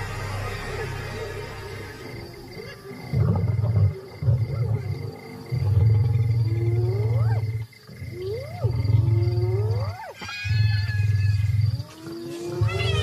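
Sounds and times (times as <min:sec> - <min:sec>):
lions growling: 0:00.0 - 0:10.0
lions snarling: 0:01.8 - 0:10.1.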